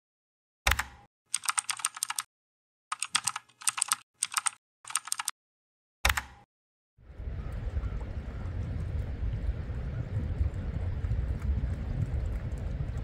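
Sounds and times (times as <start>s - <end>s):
keyboard key clicks: 0.7s - 2.3s, 2.9s - 5.3s, 6.0s - 6.4s.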